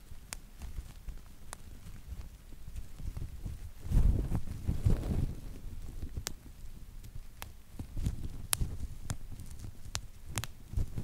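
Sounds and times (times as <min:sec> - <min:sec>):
bubble wrap popping: 0:00.0 - 0:11.0
plastic sheet rustling: 0:00.7 - 0:06.2.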